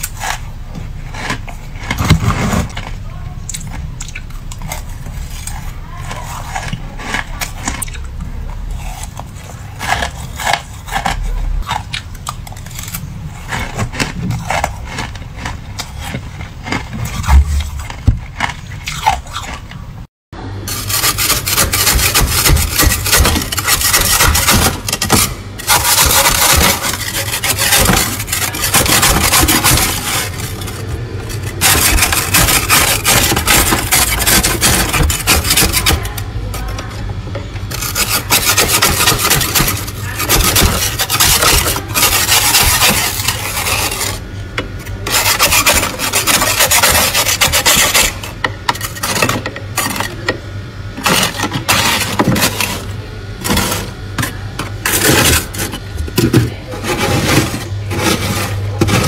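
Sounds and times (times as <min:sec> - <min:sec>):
plastic scraper rasping frost: 0:00.0 - 0:19.8, 0:20.6 - 0:37.0, 0:37.6 - 0:50.4, 0:51.0 - 0:59.0
metal spoon in loose frost: 0:20.7 - 0:36.8, 0:37.7 - 0:44.2.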